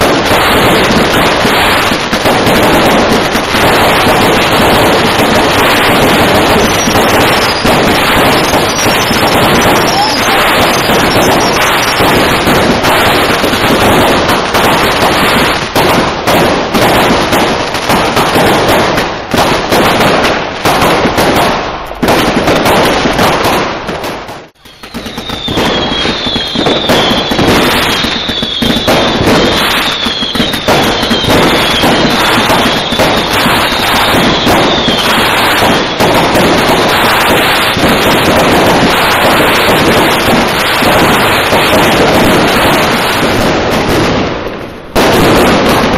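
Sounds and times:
firecrackers crackling: 0.0 - 45.9
rockets bursting: 0.0 - 45.9
short high falling whistles: 8.4 - 12.0, 24.6 - 28.8.

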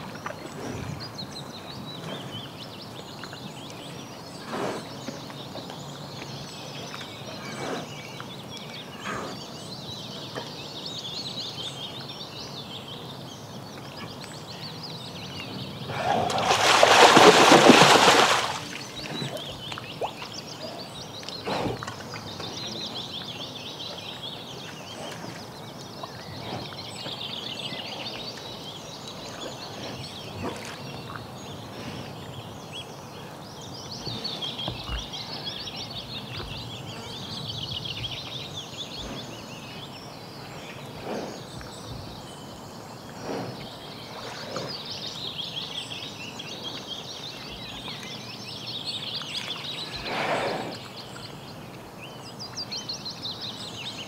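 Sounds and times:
birds singing: 0.0 - 54.0
bear splashing in water: 16.0 - 20.2.

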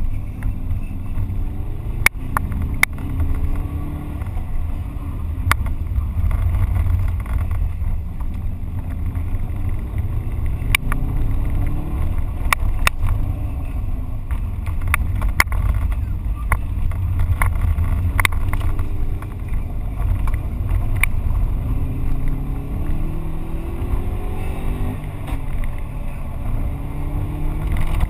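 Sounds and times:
heavy low rumble: 0.0 - 28.0
car engine revving inside cabin: 17.8 - 28.0.

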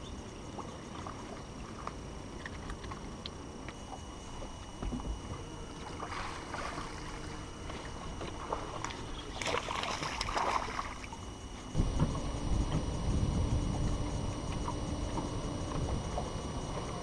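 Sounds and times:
water splashing beside boat: 0.0 - 17.0
low rumble: 11.7 - 17.0.

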